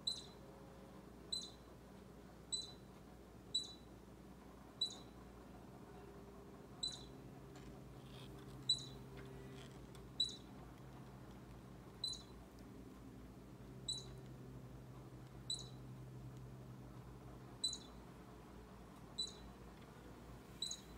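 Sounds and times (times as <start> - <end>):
baby squirrel squeaking: 0.0 - 0.4, 1.3 - 1.7, 2.5 - 2.9, 3.5 - 3.9, 4.8 - 5.2, 6.8 - 7.2, 8.0 - 10.5, 12.0 - 12.4, 13.8 - 14.3, 15.4 - 15.8, 17.6 - 18.1, 19.1 - 19.5, 20.6 - 20.9.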